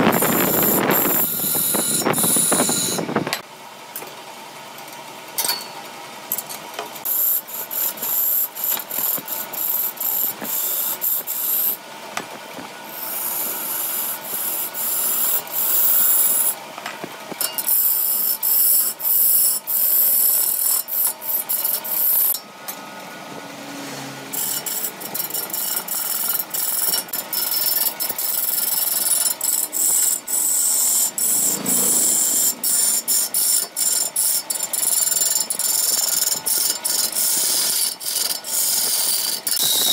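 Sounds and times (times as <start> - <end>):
lathe chisel scraping wood: 0.0 - 3.1, 12.9 - 16.5, 24.3 - 39.9.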